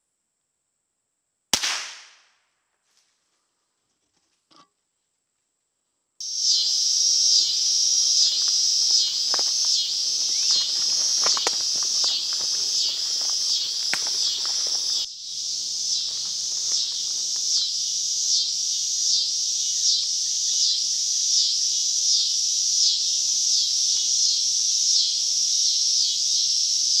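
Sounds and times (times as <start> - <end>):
insect chorus buzzing: 6.2 - 27.0
sharp ticks and rustles: 7.3 - 15.1, 15.8 - 18.0.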